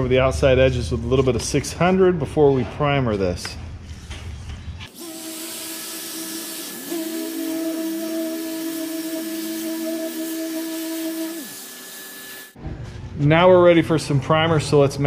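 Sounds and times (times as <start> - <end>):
orbital sander hissing: 4.9 - 12.6
sander motor hum: 4.9 - 12.6.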